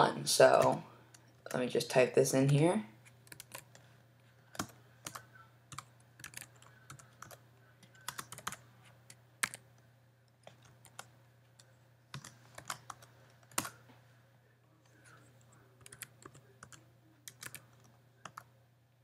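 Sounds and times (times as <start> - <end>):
faint low hum: 0.0 - 19.0
typing on computer keyboard: 3.2 - 3.8, 4.5 - 9.6, 10.4 - 13.8, 15.8 - 18.5.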